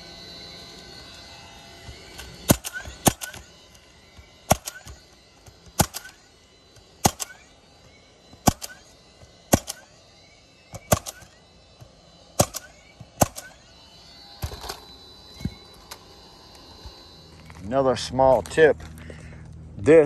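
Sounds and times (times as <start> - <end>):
roofing nailer shots: 1.8 - 10.0, 10.7 - 13.7.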